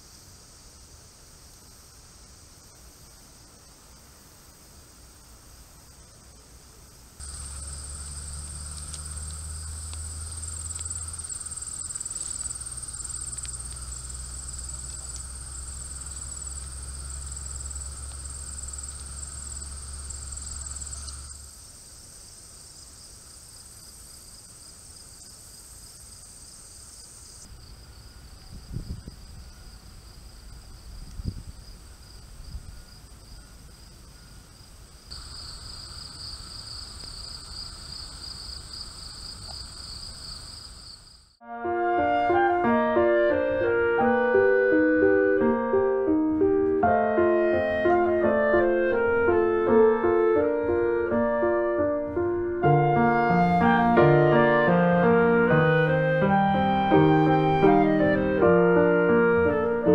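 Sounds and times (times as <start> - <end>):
insects chirring: 0.0 - 41.5, 52.1 - 58.1
low steady hum: 7.2 - 21.5.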